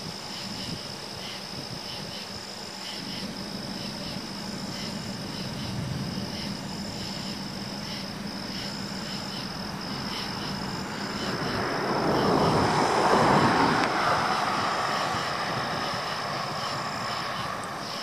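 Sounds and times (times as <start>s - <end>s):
insects chirring: 0.0s - 18.0s
car passing: 2.6s - 18.0s.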